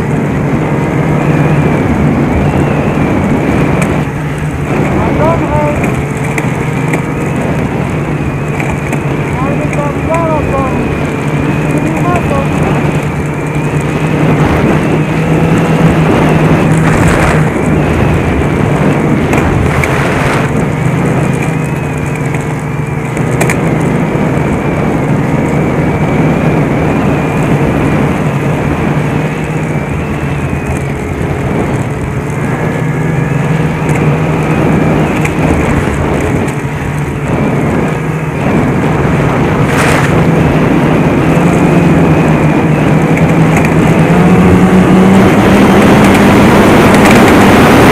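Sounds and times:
snowmobile engine running: 0:00.0 - 0:47.9.

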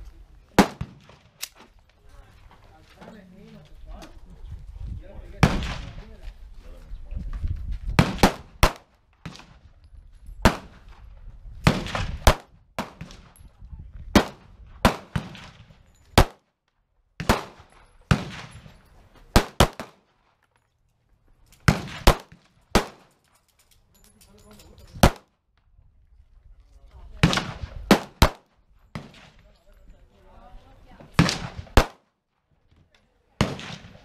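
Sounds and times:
pistol shots with echo: 0:00.6 - 0:01.5, 0:08.0 - 0:09.5, 0:10.4 - 0:10.8, 0:11.6 - 0:13.3, 0:14.1 - 0:15.6, 0:16.2 - 0:16.4, 0:17.2 - 0:18.7, 0:19.3 - 0:20.0, 0:21.7 - 0:23.1, 0:25.0 - 0:25.3, 0:27.2 - 0:29.4, 0:31.2 - 0:32.0, 0:33.4 - 0:34.0.

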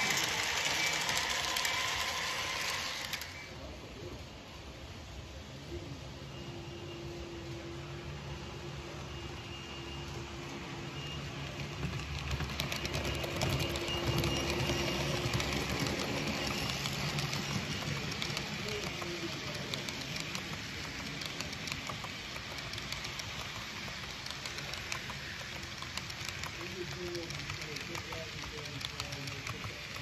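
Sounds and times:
metal wheels clicking over rails: 0:00.0 - 0:03.5, 0:10.9 - 0:30.0
model train rolling past: 0:00.0 - 0:30.0.

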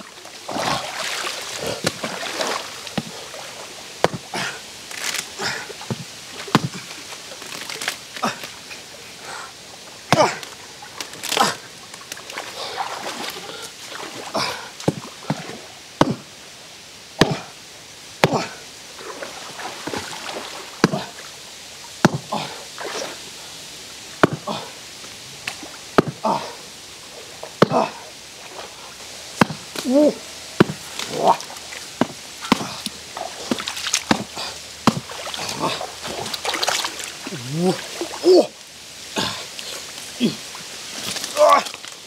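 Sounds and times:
water sloshing and splashing: 0:00.0 - 0:16.4, 0:18.2 - 0:23.5, 0:24.2 - 0:42.0
hatchet chopping wet log: 0:01.8 - 0:02.1, 0:04.0 - 0:04.5, 0:05.9 - 0:06.9, 0:10.1 - 0:10.5, 0:14.8 - 0:16.3, 0:17.2 - 0:17.5, 0:18.2 - 0:18.6, 0:20.8 - 0:21.2, 0:22.0 - 0:22.3, 0:24.2 - 0:24.6, 0:25.5 - 0:26.3, 0:27.6 - 0:27.9, 0:29.4 - 0:30.0, 0:30.6 - 0:31.4, 0:32.0 - 0:36.4.

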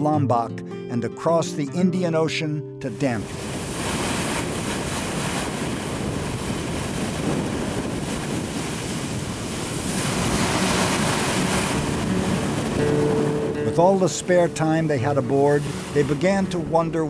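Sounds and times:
sea water splashing against bow: 0:03.0 - 0:17.0
wind on microphone: 0:03.2 - 0:13.8, 0:14.4 - 0:17.0.

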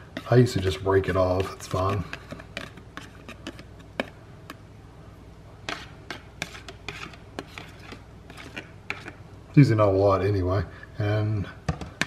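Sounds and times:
fork scraping plastic bowl: 0:00.0 - 0:04.2, 0:05.7 - 0:09.2.

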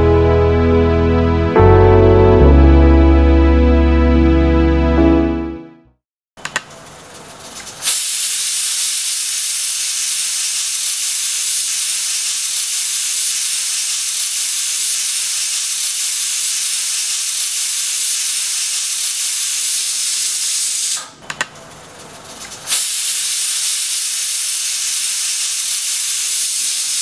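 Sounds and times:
pressure cooker steam hissing: 0:06.6 - 0:27.0.

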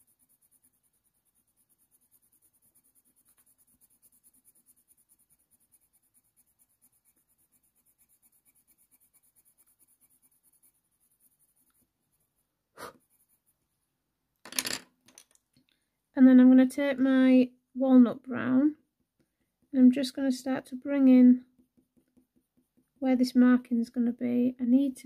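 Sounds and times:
coloured pencil scratching on paper: 0:00.0 - 0:13.7.

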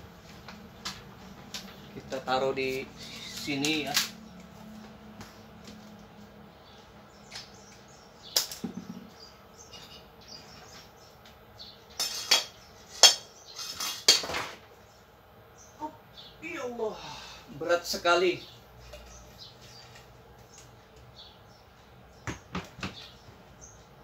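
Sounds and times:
objects knocking and clattering: 0:08.4 - 0:09.2, 0:12.0 - 0:14.6.

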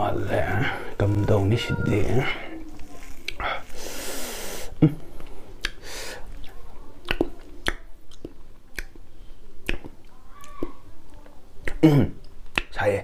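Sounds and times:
person chewing: 0:02.6 - 0:10.8
wet lip smacks and mouth clicks: 0:03.0 - 0:03.4, 0:05.6 - 0:09.0, 0:09.6 - 0:10.8, 0:11.6 - 0:12.8.

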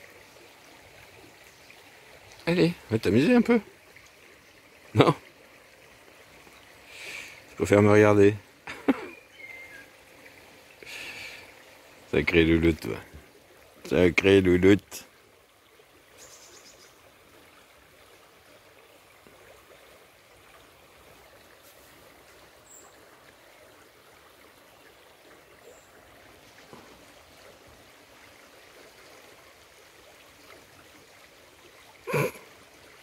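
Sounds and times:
stream flowing over stones: 0:00.0 - 0:33.0.

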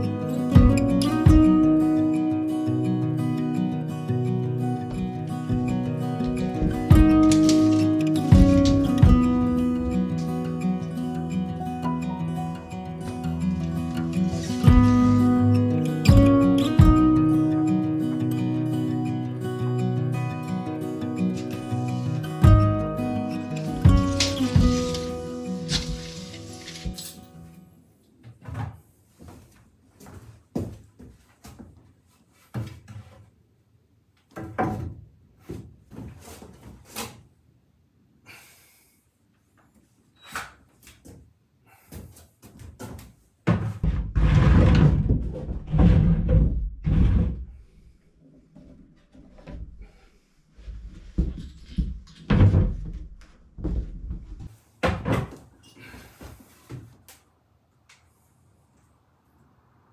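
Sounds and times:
wooden knocks and thuds: 0:05.5 - 0:10.0, 0:23.8 - 0:26.1, 0:34.3 - 0:36.2, 0:42.7 - 0:47.6, 0:50.8 - 0:55.5.

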